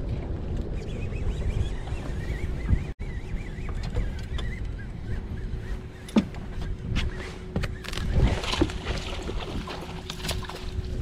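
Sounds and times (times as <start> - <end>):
wind rumbling on microphone: 0.0 - 11.0
water lapping against boat hull: 5.9 - 11.0.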